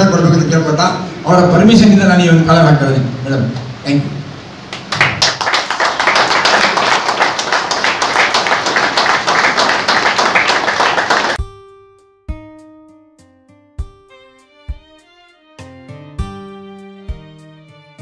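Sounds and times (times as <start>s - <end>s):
people clapping: 4.7s - 11.4s.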